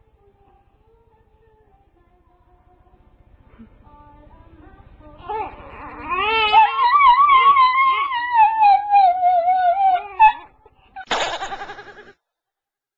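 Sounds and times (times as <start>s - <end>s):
dog howling: 5.2s - 10.6s.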